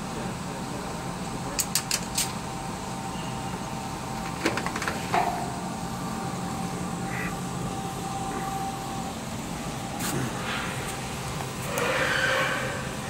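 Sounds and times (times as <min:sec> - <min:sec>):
machine tool hum: 0:05.0 - 0:13.0.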